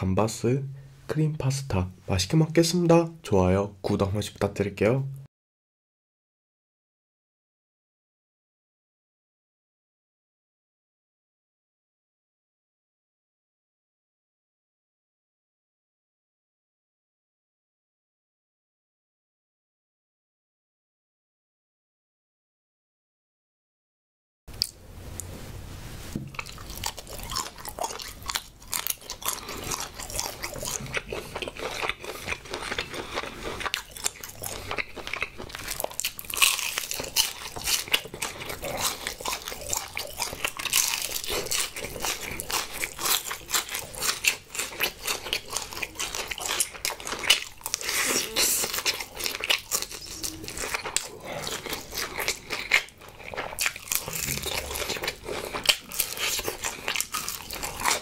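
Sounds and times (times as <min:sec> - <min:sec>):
crunchy chewing of fried chicken: 0:26.3 - 0:58.0.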